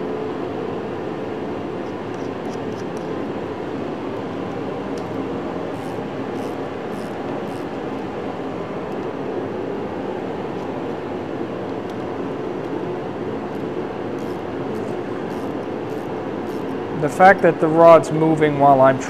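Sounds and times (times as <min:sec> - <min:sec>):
ratchet wrench clicks: 0:05.7 - 0:07.8, 0:14.2 - 0:16.8.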